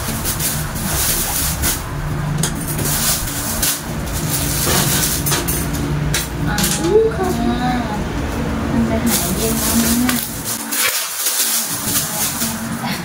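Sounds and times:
plastic bags rustling: 0:00.0 - 0:13.0.

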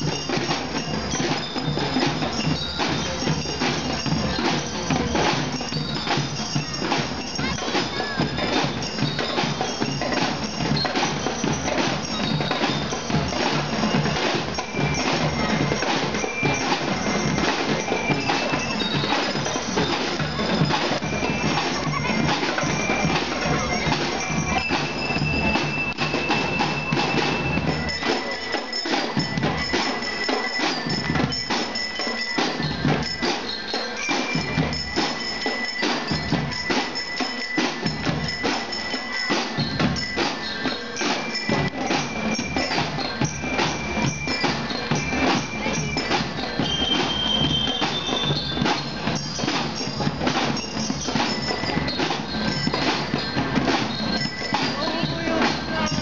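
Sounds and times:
bell lyre melody: 0:00.0 - 0:56.0
snare drums: 0:00.0 - 0:56.0
bass drum beats: 0:54.2 - 0:56.0.

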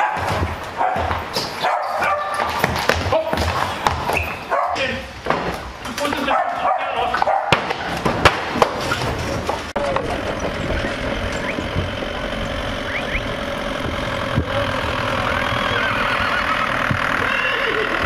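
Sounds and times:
sharp knocks: 0:07.2 - 0:12.3
engine idling: 0:09.8 - 0:18.0.

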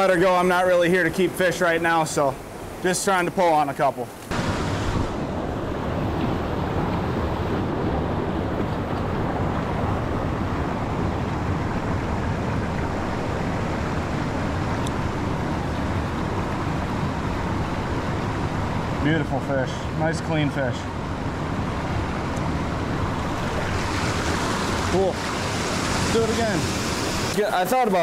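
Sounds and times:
fast river current rushing: 0:00.0 - 0:19.2, 0:19.8 - 0:28.0.

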